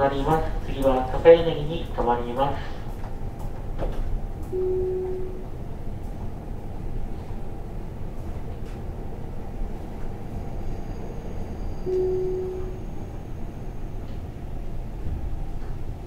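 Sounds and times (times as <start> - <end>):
train rumble: 0.0 - 16.0
faint high tone: 4.6 - 5.4, 11.8 - 12.9
mid-pitched tone: 4.6 - 5.5, 11.9 - 12.8.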